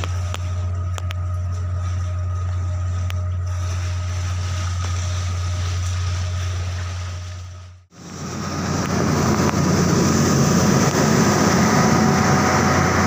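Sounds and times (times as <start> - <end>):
diesel machinery humming: 0.0 - 13.0.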